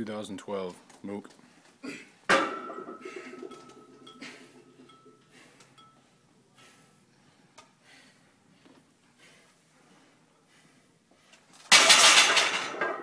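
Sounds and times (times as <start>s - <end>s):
barbell plates clinking: 2.3s - 6.0s.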